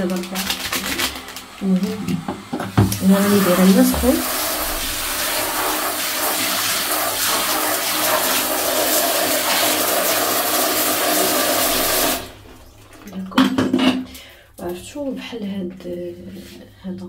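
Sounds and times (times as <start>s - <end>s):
water running from a tap: 0.0s - 14.4s
knock: 2.2s - 3.0s.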